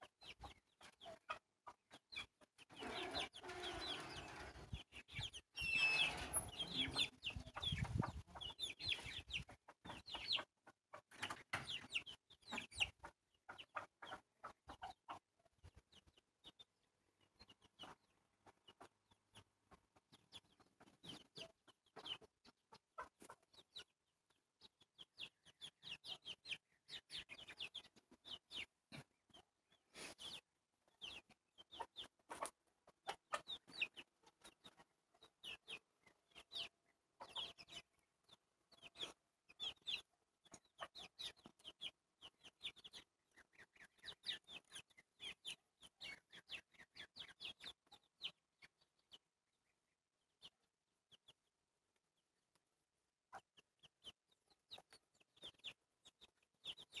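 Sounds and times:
chickens peeping and clucking: 0.0s - 49.6s, 53.3s - 57.0s.

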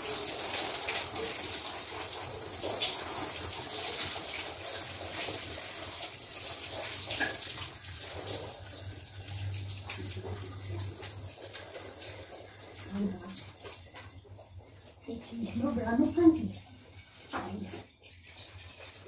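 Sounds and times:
tap water splashing into sink: 0.0s - 14.5s.

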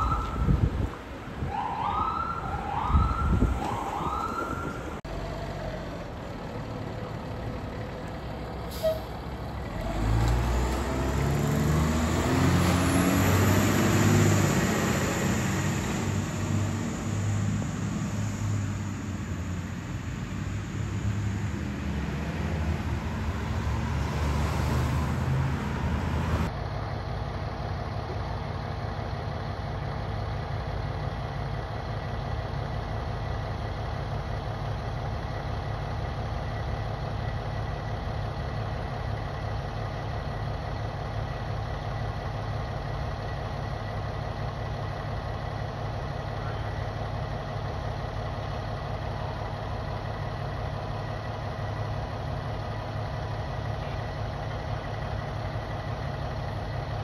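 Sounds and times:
siren whoops: 0.0s - 0.6s, 1.5s - 4.8s
fire engine idling: 0.0s - 9.8s, 25.5s - 57.0s
diesel engine accelerating: 2.7s - 57.0s.

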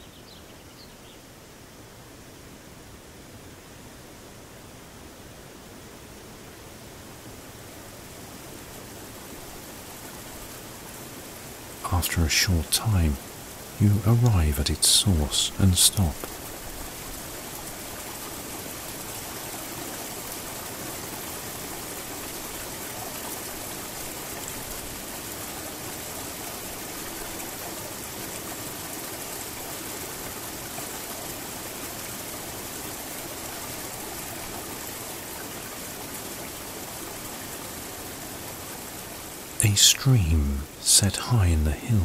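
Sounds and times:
waterfall rushing: 11.9s - 16.7s, 36.3s - 42.0s.

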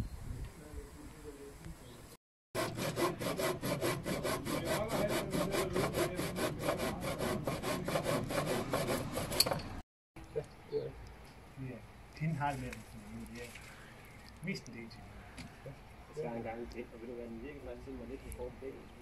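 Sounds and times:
hand saw cutting wood: 2.6s - 9.8s.

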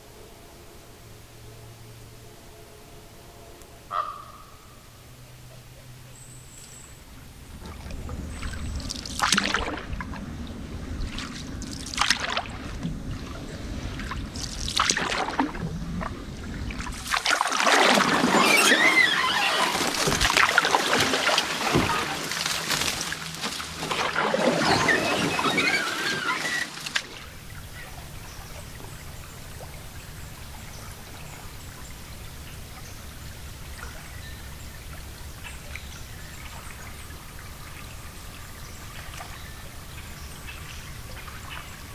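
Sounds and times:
hull rustling through reeds: 6.8s - 31.6s
paddle strokes and splashes: 6.9s - 32.0s.

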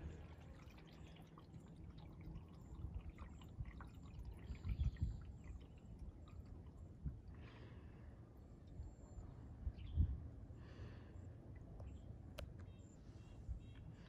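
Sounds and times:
water dripping from paddle: 0.0s - 7.5s.

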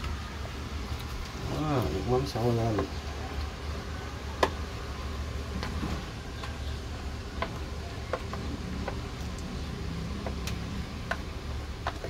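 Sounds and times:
boiling pot clicks and pops: 4.4s - 4.6s, 6.4s - 12.0s.

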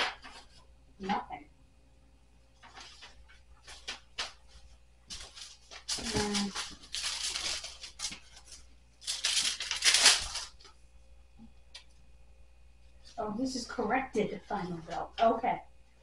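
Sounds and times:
paper rustling: 0.0s - 0.7s, 2.6s - 10.8s.

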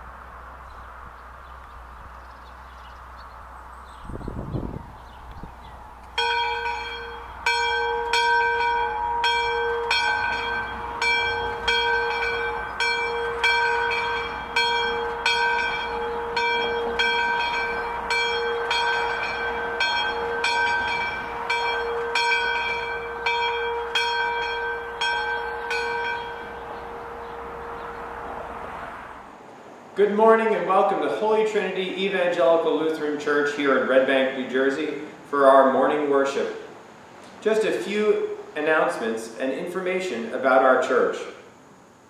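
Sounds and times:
church bell tolling: 6.2s - 28.4s.

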